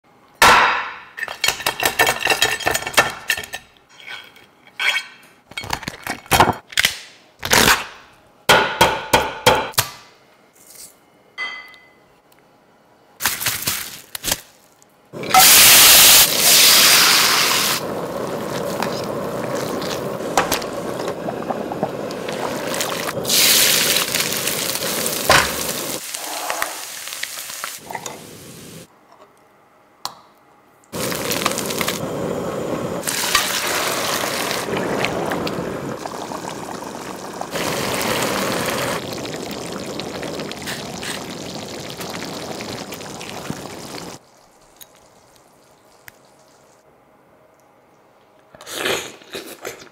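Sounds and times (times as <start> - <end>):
long steady hiss: 15.2 - 28.9, 31.0 - 44.3.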